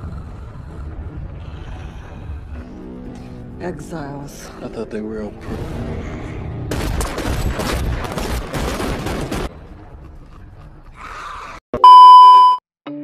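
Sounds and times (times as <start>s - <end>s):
rapid gunfire: 6.7s - 9.6s
test-tone beep: 11.8s - 12.6s.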